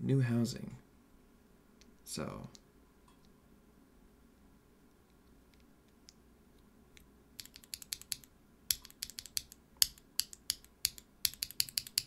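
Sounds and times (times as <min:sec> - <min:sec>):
mechanical keyboard key clacks: 0:07.4 - 0:12.0.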